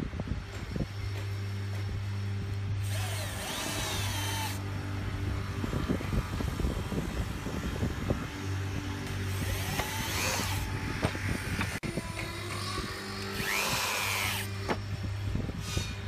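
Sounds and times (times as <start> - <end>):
cordless drill motor running: 0.5 - 16.0.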